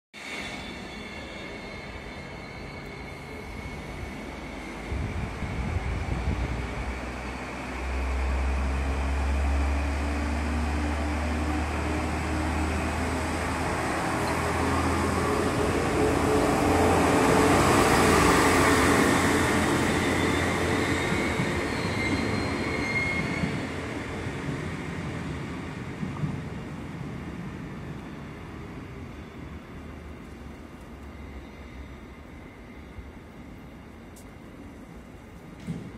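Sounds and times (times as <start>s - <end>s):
train rolling past: 0.2s - 35.9s
diesel train engine drone: 0.3s - 35.9s
thin wheel squeal: 19.8s - 23.5s.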